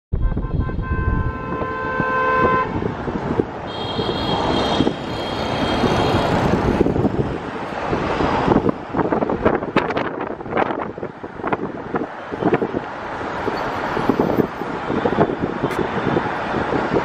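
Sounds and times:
road traffic: 0.1s - 17.0s
higher-pitched vehicle horn: 0.2s - 3.0s, 3.6s - 6.6s.

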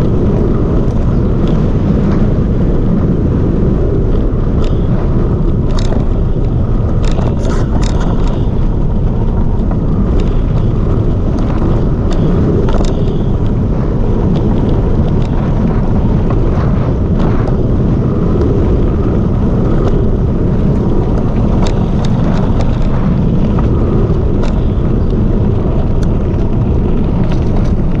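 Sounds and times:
bike clicks and rattles: 0.0s - 28.0s
knobby tyres rumbling on dirt: 0.0s - 28.0s
wind buffeting microphone: 0.0s - 28.0s.

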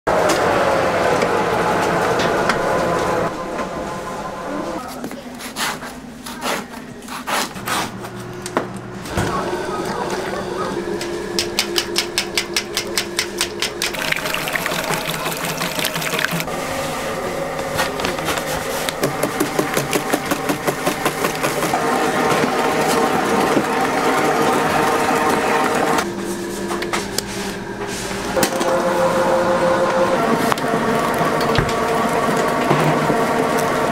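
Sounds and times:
electric mixer motor humming: 8.2s - 16.6s, 17.3s - 26.1s, 28.3s - 33.9s.

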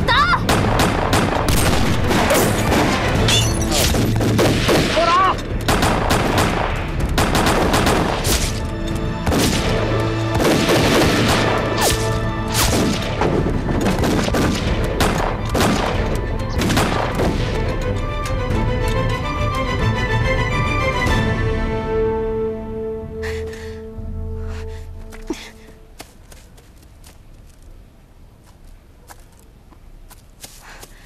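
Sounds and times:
dramatic music: 0.0s - 26.0s
gunshots: 0.4s - 8.6s, 9.2s - 17.6s.

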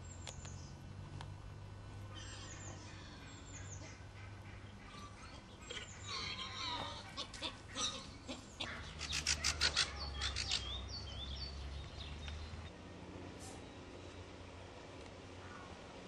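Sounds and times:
bird sharp chirps: 8.6s - 12.6s.

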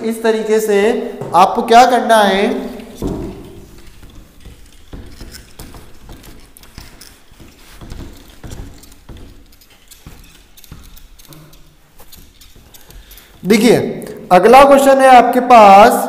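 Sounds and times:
duster scrubbing whiteboard: 2.4s - 10.6s
soft knocks and taps: 2.8s - 11.2s.

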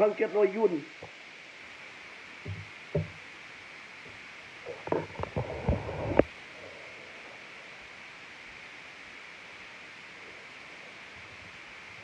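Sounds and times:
microphone hiss: 0.0s - 12.0s
soft thumps and knocks: 2.4s - 3.2s.

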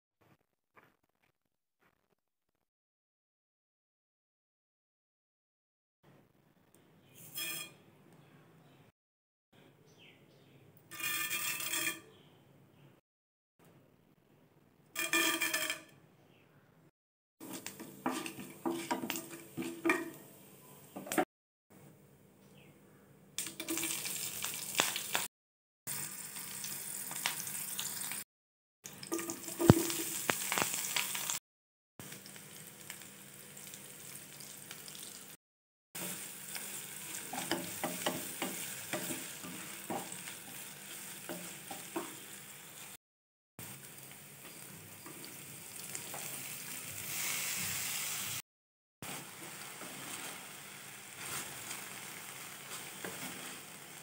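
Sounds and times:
wooden spatula stirring in pan: 17.4s - 20.1s, 36.0s - 42.4s, 49.0s - 54.0s
oil sizzling in a pan: 17.4s - 21.2s, 23.4s - 25.3s, 25.9s - 28.2s, 28.9s - 31.4s, 32.0s - 35.4s, 36.0s - 43.0s, 43.6s - 48.4s, 49.0s - 54.0s.

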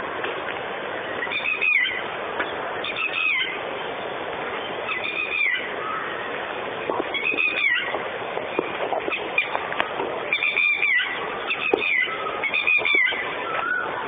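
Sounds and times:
steady hiss: 0.0s - 14.0s
bird whistled call: 1.2s - 2.0s, 10.3s - 14.0s.

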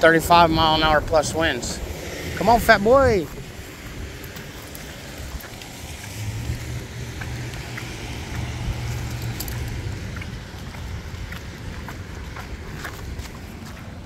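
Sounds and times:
car passing on wet road: 0.0s - 14.0s
light metallic clinks: 8.8s - 9.9s.

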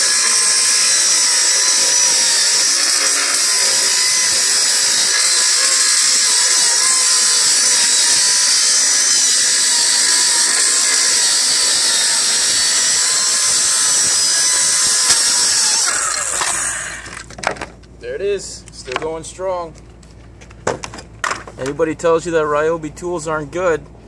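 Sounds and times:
circular saw cutting plywood: 0.0s - 17.3s.

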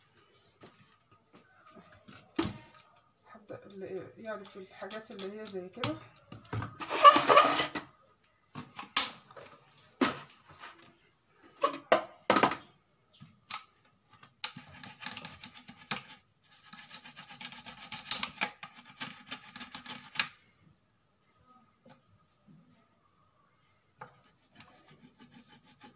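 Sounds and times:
plastic parts knocked and handled: 8.5s - 11.0s, 11.6s - 14.7s
toothbrush scrubbing plastic: 14.4s - 20.3s, 24.0s - 25.9s.

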